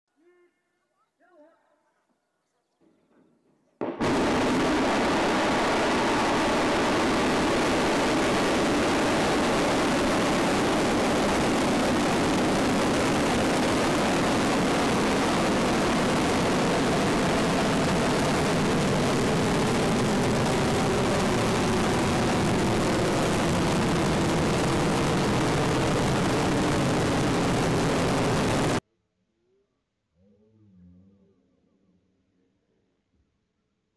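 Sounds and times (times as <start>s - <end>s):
rocket engines roaring at liftoff: 4.0s - 28.8s.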